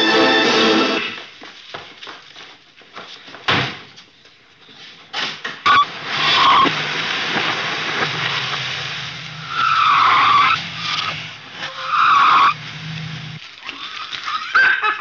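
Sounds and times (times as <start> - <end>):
tyre squeals: 5.7 - 6.8, 9.4 - 14.6
car engine pulling away: 5.9 - 14.4.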